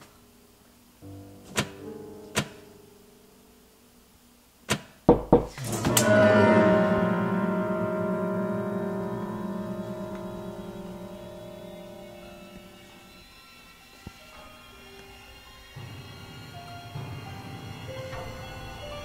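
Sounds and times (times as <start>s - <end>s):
dense horror score chord: 5.7s - 19.0s.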